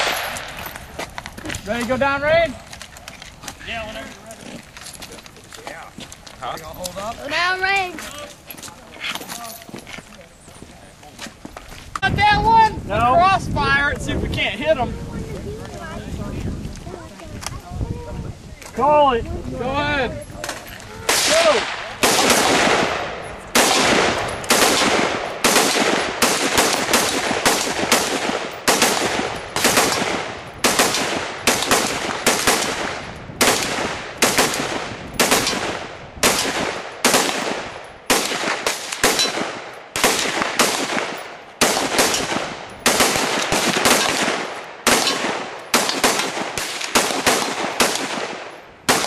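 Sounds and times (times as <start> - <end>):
rifle and handgun gunshots: 0.0 - 0.8, 20.4 - 49.0.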